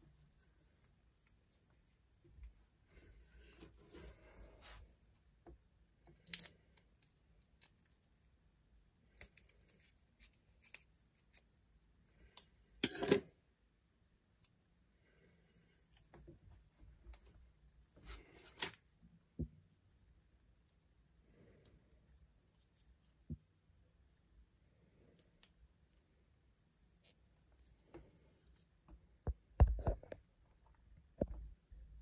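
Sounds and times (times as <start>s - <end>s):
small clicks and taps of handling: 28.8s - 31.6s.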